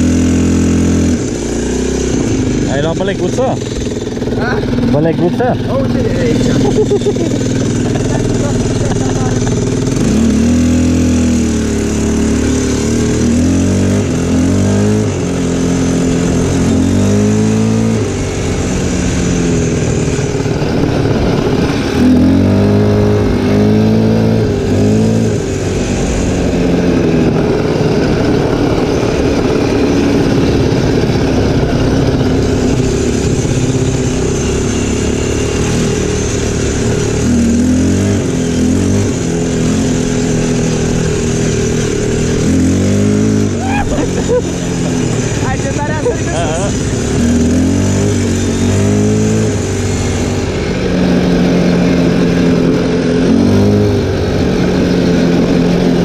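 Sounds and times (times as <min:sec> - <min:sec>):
atv engine revving: 0:00.0 - 0:56.0.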